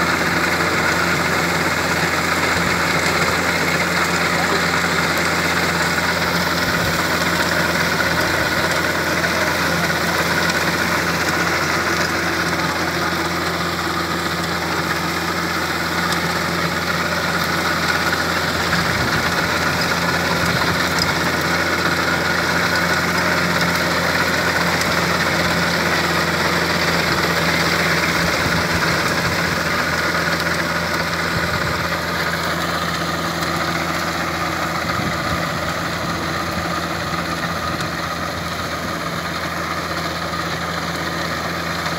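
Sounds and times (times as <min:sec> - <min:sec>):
diesel tractor running under load: 0:00.0 - 0:41.9.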